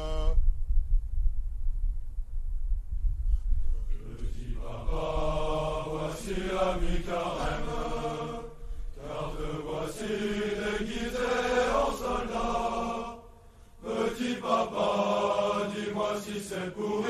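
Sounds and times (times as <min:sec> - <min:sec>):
low rumble: 0:00.0 - 0:11.2
wordless choir singing: 0:03.9 - 0:17.0.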